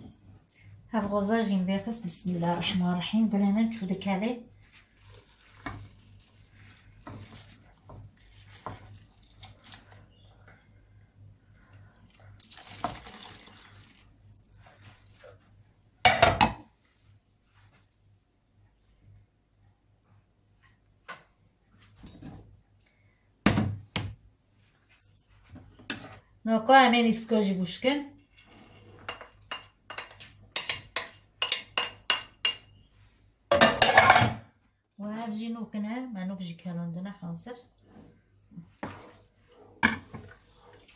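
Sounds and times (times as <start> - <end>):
liquid pouring and splashing: 5.0 - 10.0, 12.4 - 14.5
scraping and rattling in pot: 28.1 - 32.6
utensil clinking on plate and pot: 28.2 - 32.7.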